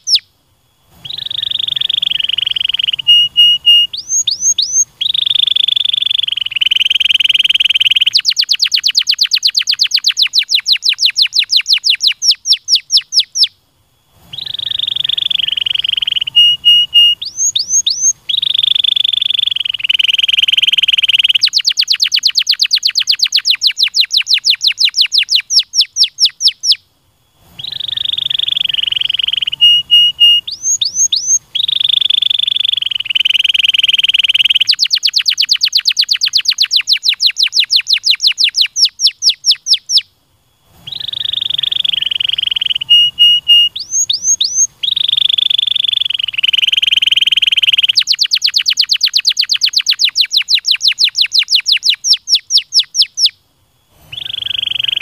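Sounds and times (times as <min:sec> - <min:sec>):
canary singing: 0:00.0 - 0:00.3, 0:01.0 - 0:13.6, 0:14.2 - 0:26.8, 0:27.4 - 0:40.1, 0:40.8 - 0:53.4, 0:54.0 - 0:55.0.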